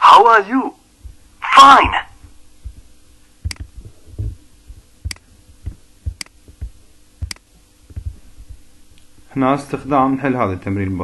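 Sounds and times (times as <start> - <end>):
faint low thumps: 1.0 - 9.3
computer mouse clicking: 3.5 - 3.8, 5.1 - 5.3, 6.2 - 6.4, 7.2 - 8.1.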